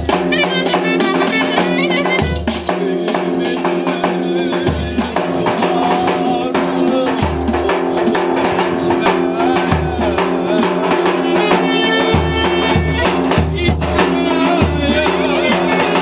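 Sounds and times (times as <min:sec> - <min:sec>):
man singing: 0:00.0 - 0:16.0
clarinet: 0:00.3 - 0:02.6, 0:11.2 - 0:13.5
bass drum strokes: 0:04.6 - 0:11.4.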